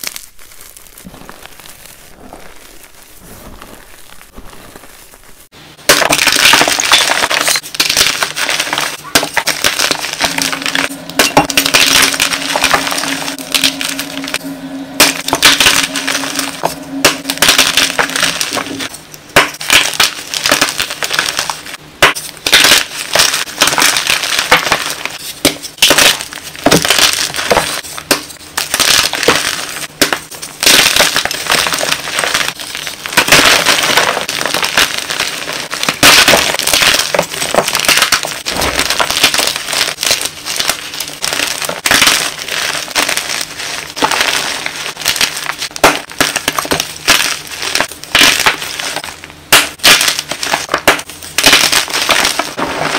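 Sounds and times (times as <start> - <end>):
hands crushing chalk blocks: 5.9 - 13.8, 19.4 - 52.9.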